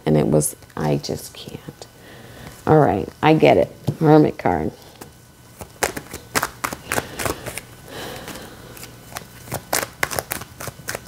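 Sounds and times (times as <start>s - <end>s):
cards being shuffled: 4.9s - 11.0s.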